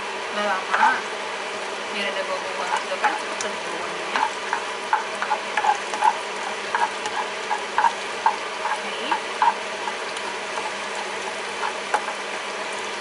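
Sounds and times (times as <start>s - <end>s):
garlic sizzling in oil: 0.0s - 13.0s
spatula scraping a pan: 2.4s - 12.4s.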